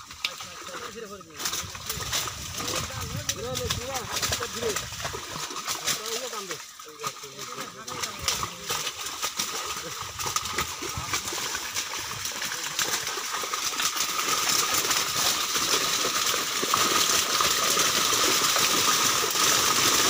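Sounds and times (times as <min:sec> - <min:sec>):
fish splashing in net: 0:00.0 - 0:20.0.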